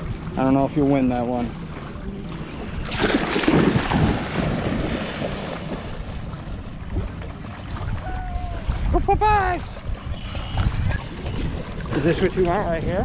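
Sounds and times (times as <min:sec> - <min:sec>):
wind on microphone: 0:02.5 - 0:13.0
dog splashing into water: 0:02.9 - 0:05.9.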